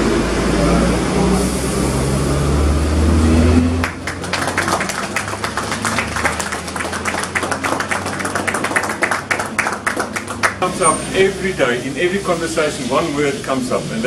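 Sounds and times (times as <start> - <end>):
crowd clapping: 3.8 - 10.8.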